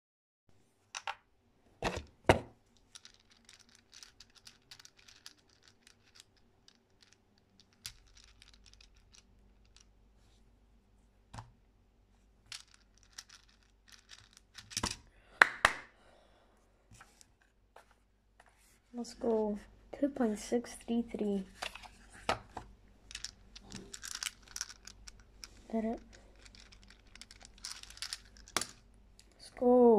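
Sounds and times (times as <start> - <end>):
plastic puzzle clicking: 2.9 - 9.9, 12.5 - 15.0, 21.6 - 29.4.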